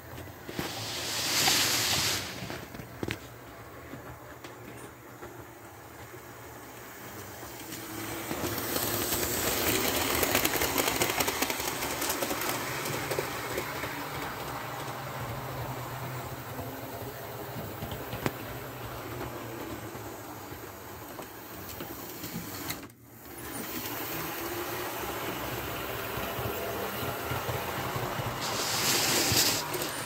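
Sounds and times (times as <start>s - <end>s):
model train running past: 0.0s - 30.0s
wheels clicking over track: 7.1s - 30.0s.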